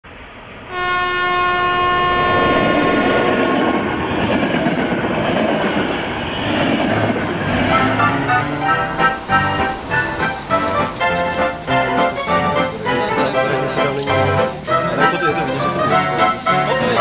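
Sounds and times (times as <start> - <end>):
passing train rumble: 0.0 - 17.0
train horn blast: 0.7 - 3.6, 7.6 - 17.0
music: 7.6 - 17.0.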